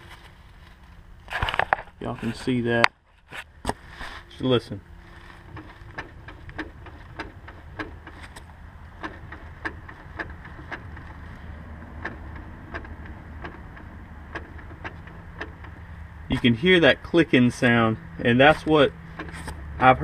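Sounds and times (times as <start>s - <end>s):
low steady hum: 0.0s - 20.0s
propeller shaft clicking: 5.1s - 16.3s, 18.5s - 19.7s.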